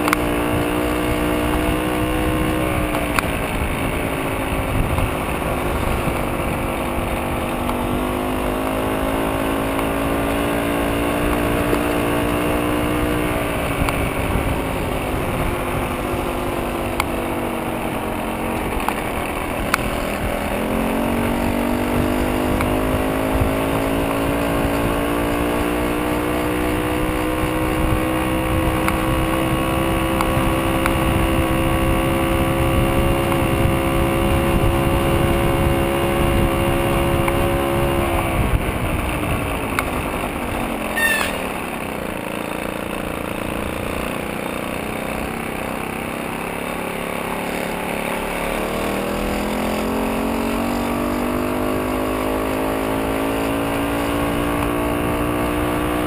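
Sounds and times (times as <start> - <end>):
wind rumble on microphone: 0.0 - 8.1, 9.9 - 41.3
moped two-stroke engine running: 0.0 - 56.0
brief high squeak: 40.9 - 41.6.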